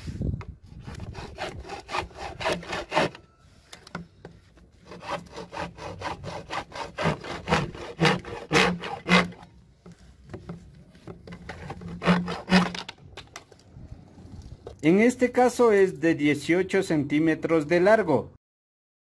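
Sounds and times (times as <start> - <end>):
hacksaw cutting plastic pipe: 0.7 - 13.0.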